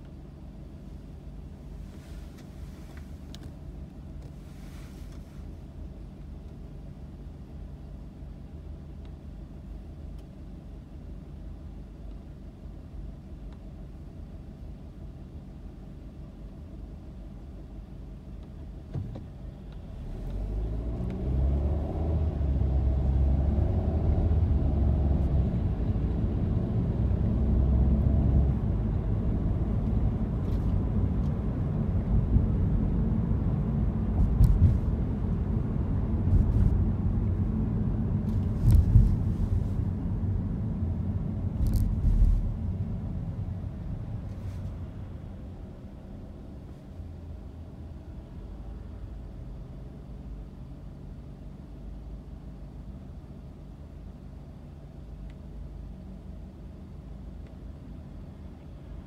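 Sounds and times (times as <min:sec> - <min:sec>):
road rumble: 0:00.0 - 0:59.0
car engine accelerating: 0:19.8 - 0:45.6
thumps over the road: 0:34.2 - 0:34.9.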